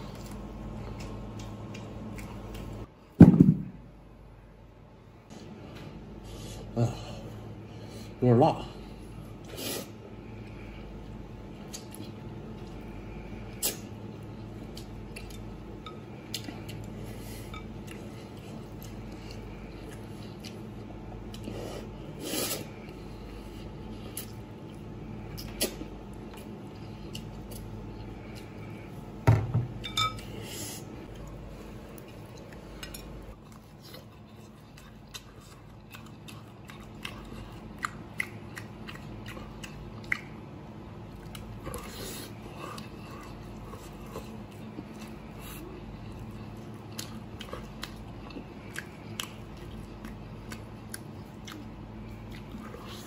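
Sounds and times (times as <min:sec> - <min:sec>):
steady low hum: 0:00.0 - 0:53.0
meat chewing: 0:31.0 - 0:53.0.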